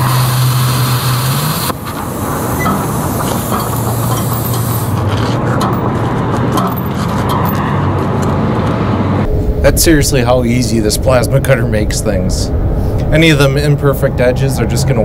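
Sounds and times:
plasma cutter hissing: 0:00.0 - 0:05.0
low hum: 0:07.4 - 0:15.0.

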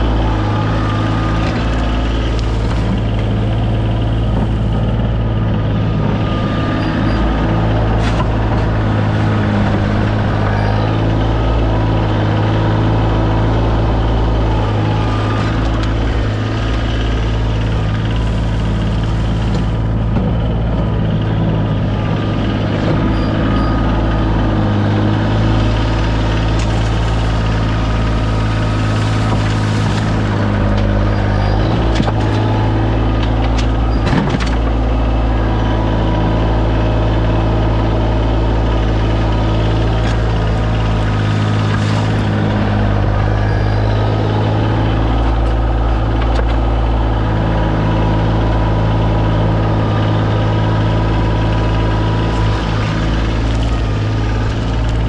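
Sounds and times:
tractor diesel engine running: 0:00.0 - 0:55.0.

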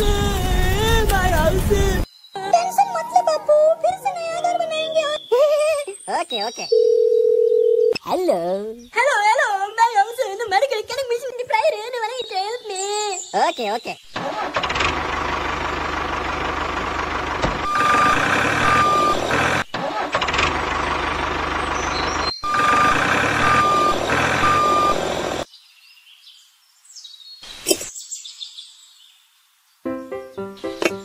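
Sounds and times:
tractor diesel engine running: 0:14.2 - 0:25.5
reversing alarm beeping: 0:17.6 - 0:19.6, 0:22.4 - 0:25.4.

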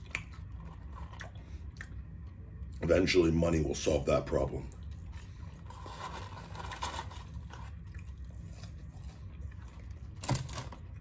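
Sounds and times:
man chewing fries: 0:00.0 - 0:03.1, 0:04.6 - 0:11.0
paper carton crinkling: 0:05.6 - 0:07.8.

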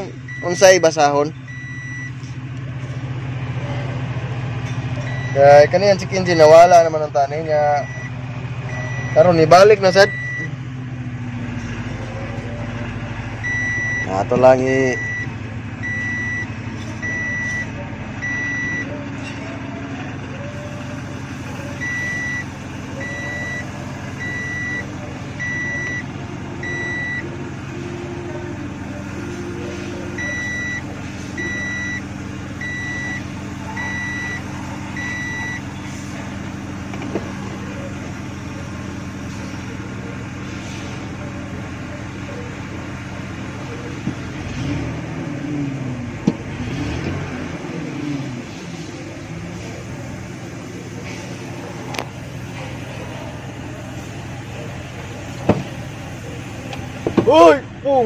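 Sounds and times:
truck engine idling: 0:00.0 - 0:58.0
electronic warning beep: 0:00.3 - 0:02.2, 0:05.1 - 0:05.4, 0:07.8 - 0:09.4, 0:10.0 - 0:10.6, 0:13.4 - 0:14.4, 0:15.0 - 0:19.0, 0:21.8 - 0:27.3, 0:29.5 - 0:35.8.

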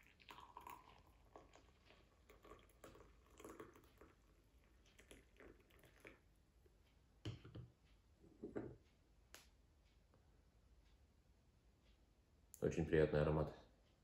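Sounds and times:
tea pouring: 0:00.0 - 0:06.4.

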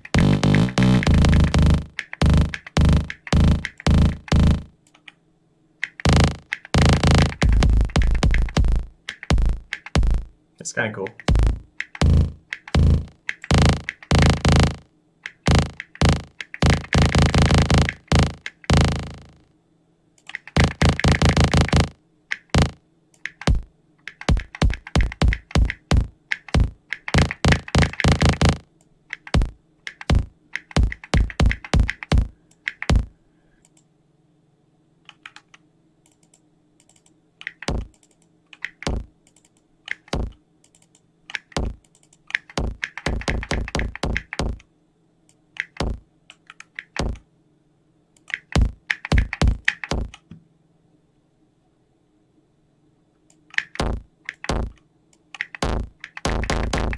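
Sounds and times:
computer keyboard clicks: 0:00.1 - 0:05.2, 0:05.8 - 0:10.0, 0:11.2 - 0:18.7, 0:20.2 - 0:33.9, 0:35.1 - 0:44.7, 0:45.3 - 0:47.2, 0:48.2 - 0:50.3, 0:53.3 - 0:56.9
kick drum bass hits: 0:06.1 - 0:10.3, 0:11.3 - 0:14.8, 0:15.5 - 0:19.2, 0:22.6 - 0:22.8, 0:23.5 - 0:23.7, 0:24.3 - 0:28.6, 0:29.4 - 0:32.3, 0:42.6 - 0:44.6, 0:48.6 - 0:50.1, 0:53.8 - 0:54.7.

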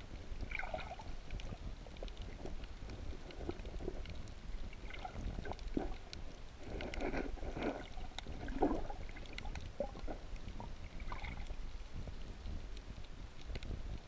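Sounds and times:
underwater rumble of moving water: 0:00.0 - 0:14.0
muffled water sloshes: 0:00.3 - 0:12.0
small clicks: 0:12.8 - 0:14.0.

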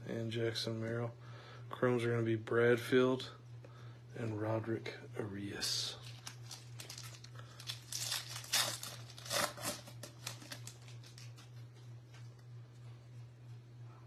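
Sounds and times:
steady low hum: 0:00.0 - 0:14.0
paper cards rustling: 0:06.0 - 0:11.6.

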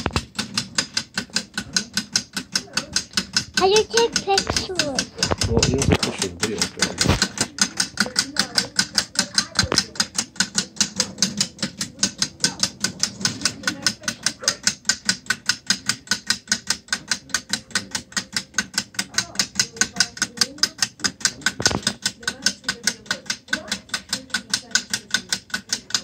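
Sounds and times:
plastic escapement ticking: 0:00.0 - 0:26.0.

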